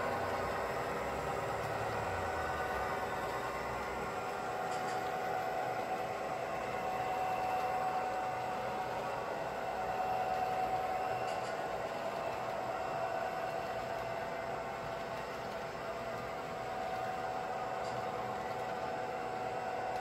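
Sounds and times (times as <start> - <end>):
faint steady whine: 0.0 - 20.0.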